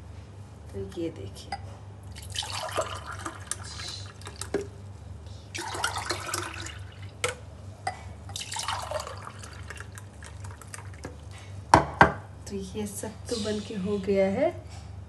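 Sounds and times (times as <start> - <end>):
liquid pouring into a glass: 2.1 - 4.7, 5.5 - 7.4, 8.3 - 11.2.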